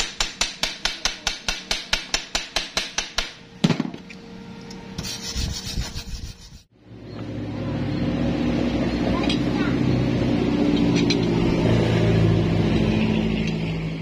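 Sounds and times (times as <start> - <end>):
steady low hum: 3.3 - 11.7.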